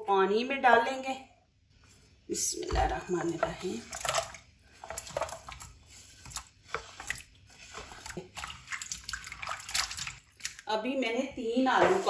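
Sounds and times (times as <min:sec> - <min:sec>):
hand stirring water splashes: 0:02.6 - 0:10.7.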